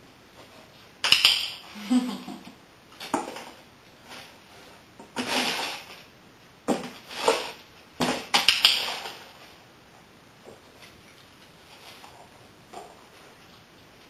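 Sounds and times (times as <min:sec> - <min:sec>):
box scraping on tile floor: 0:04.1 - 0:06.0, 0:06.8 - 0:08.2.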